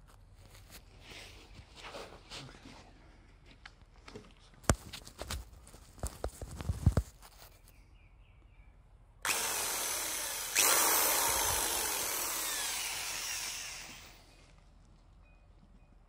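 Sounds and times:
electric drill running: 0:09.3 - 0:14.3.

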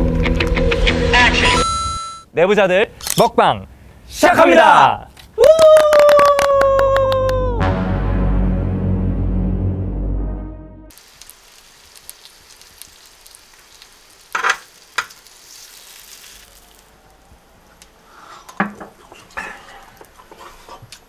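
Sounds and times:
meat sizzling on grill pan: 0:10.9 - 0:16.9.

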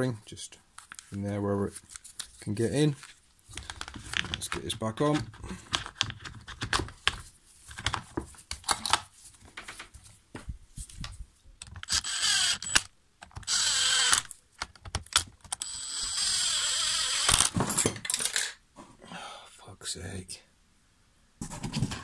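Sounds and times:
cordless drill running: 0:11.9 - 0:14.3, 0:15.6 - 0:17.5.

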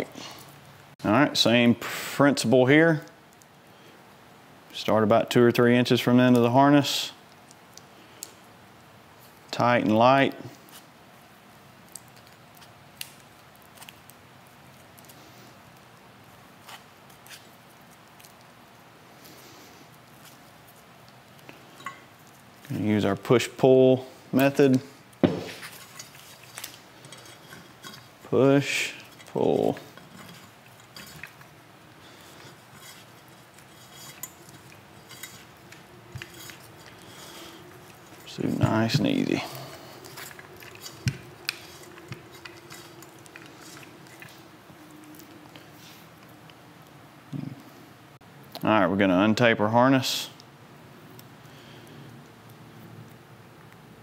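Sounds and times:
faint sharp clicks and crackles: 0:07.2 - 0:08.5, 0:11.8 - 0:22.8
wiring rubbing in metal tube: 0:25.6 - 0:44.5.

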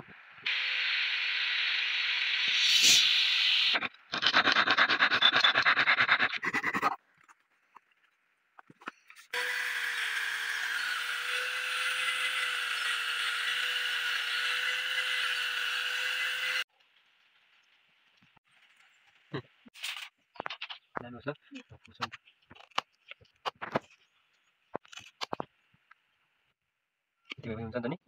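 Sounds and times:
angle grinder sanding wood: 0:09.4 - 0:16.6.

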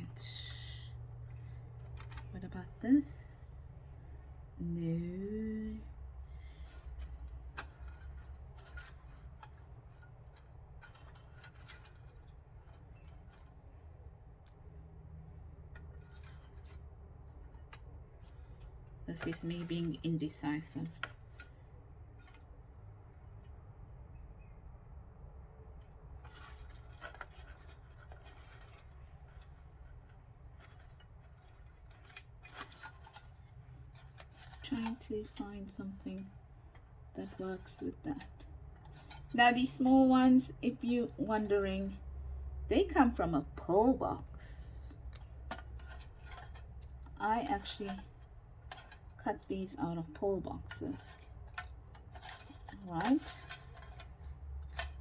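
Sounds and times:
low steady hum: 0:00.0 - 0:55.0
paper rustling: 0:01.2 - 0:02.8, 0:06.5 - 0:13.8, 0:15.7 - 0:22.6, 0:26.0 - 0:42.0, 0:45.1 - 0:55.0.

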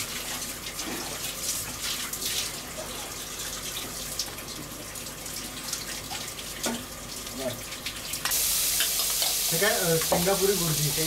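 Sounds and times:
steady hiss: 0:08.3 - 0:11.0.

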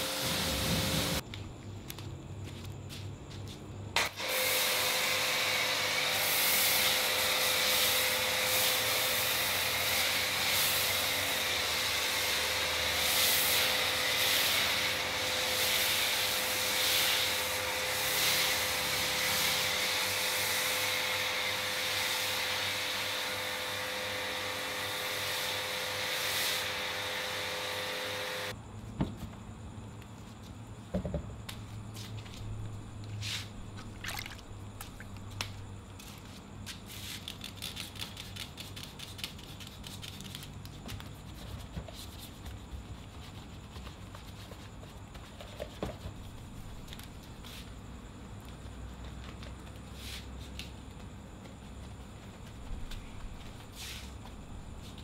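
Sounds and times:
pressure washer spray hiss: 0:00.0 - 0:01.2, 0:04.0 - 0:23.4.

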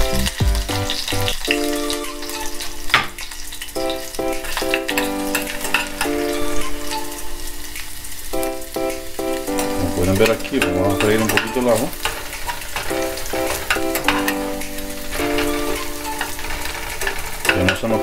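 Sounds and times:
upbeat electronic music: 0:00.0 - 0:03.0, 0:03.8 - 0:12.0
garlic sizzling in hot oil: 0:00.1 - 0:18.0.

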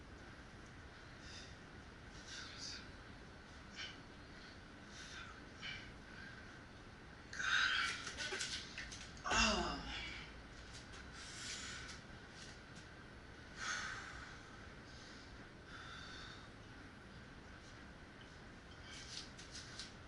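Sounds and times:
man grunting: 0:09.3 - 0:10.0
man breathing hard: 0:13.6 - 0:16.6.

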